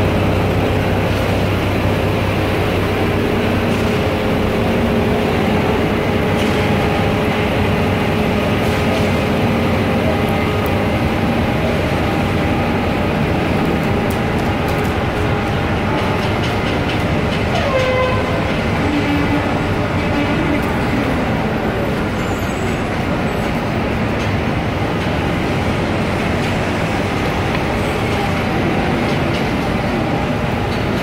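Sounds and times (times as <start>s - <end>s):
diesel truck engine rumbling: 0.0s - 31.0s.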